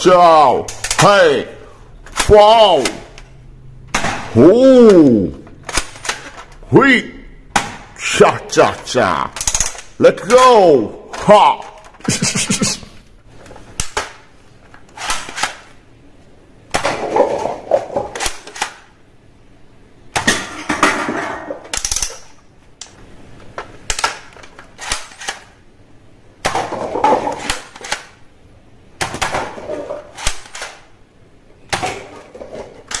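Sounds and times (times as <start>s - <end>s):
plastic toy guns clicking: 0.7s - 1.1s, 5.6s - 6.6s, 9.3s - 10.4s, 13.7s - 14.2s, 14.8s - 15.7s, 18.1s - 18.9s, 21.7s - 23.0s, 23.8s - 25.6s, 27.3s - 28.2s, 30.1s - 30.9s.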